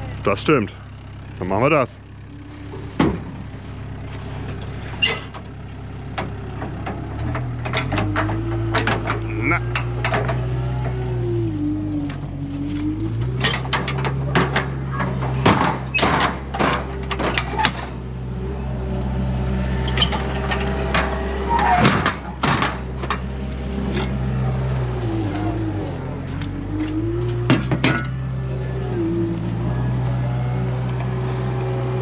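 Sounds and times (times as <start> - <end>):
diesel engine whining under load: 0.0 - 32.0
heavy load knocking and clanking: 2.4 - 3.6, 6.1 - 11.1, 13.0 - 18.3, 19.8 - 24.5, 26.2 - 28.4.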